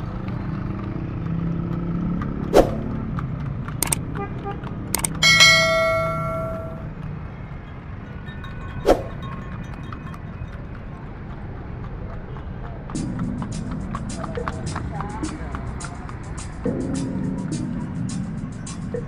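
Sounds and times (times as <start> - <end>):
street traffic rumble: 0.0 - 19.0
mouse-click sounds: 3.8 - 4.0, 4.9 - 5.2
notification bell ding: 5.0 - 6.8.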